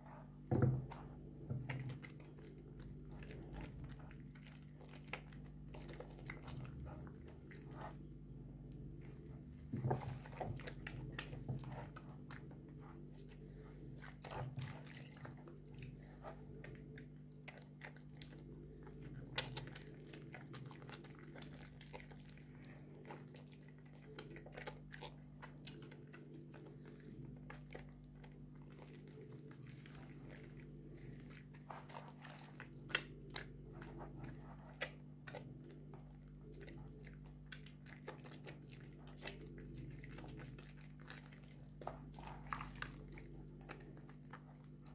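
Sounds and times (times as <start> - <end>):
faint low hum: 0.0 - 44.9
squelching soapy lather: 0.0 - 44.9.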